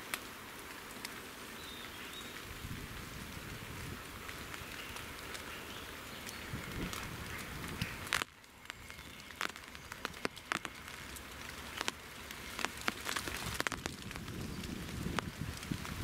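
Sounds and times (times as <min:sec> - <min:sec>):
rain pattering: 0:00.0 - 0:16.0
sharp drops ticking close: 0:07.0 - 0:14.3.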